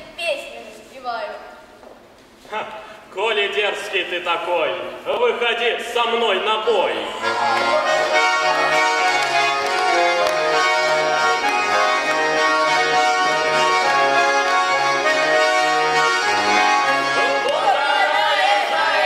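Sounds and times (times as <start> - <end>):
button accordion folk dance tune: 6.9 - 19.0
people singing: 17.1 - 19.0.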